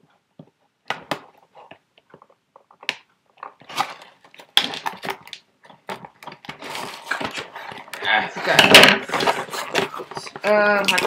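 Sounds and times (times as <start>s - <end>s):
cardboard box scraping and crackling: 6.3s - 11.0s.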